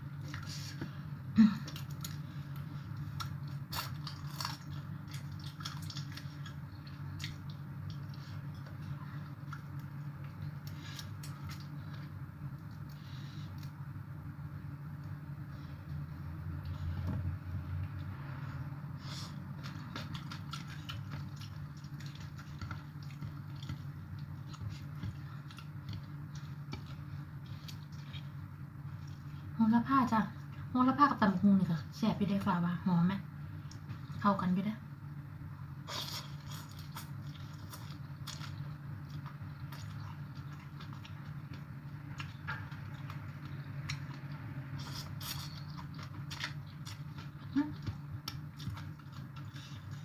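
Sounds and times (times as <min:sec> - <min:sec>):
steady low hum: 0:00.0 - 0:50.0
chewing: 0:01.6 - 0:13.8, 0:19.0 - 0:29.6, 0:35.8 - 0:50.0
crab shell cracking and chewing: 0:02.9 - 0:08.8.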